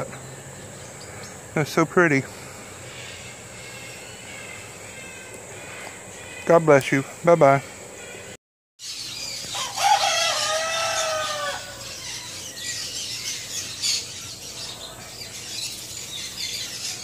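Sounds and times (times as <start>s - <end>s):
small birds chirping: 0.0s - 17.0s
rooster crowing: 9.5s - 12.4s.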